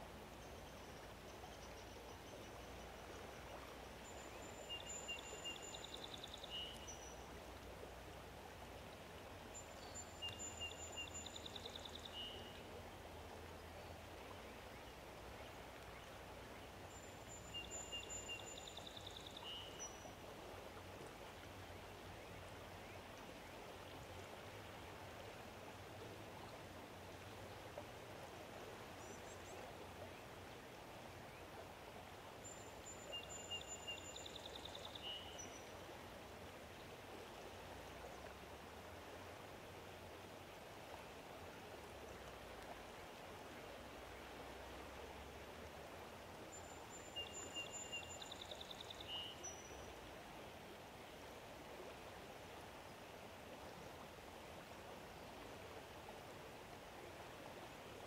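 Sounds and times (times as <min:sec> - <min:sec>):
flowing water: 0:00.0 - 0:58.0
songbird singing: 0:00.3 - 0:07.6, 0:09.5 - 0:20.2, 0:32.4 - 0:35.9, 0:46.4 - 0:50.0.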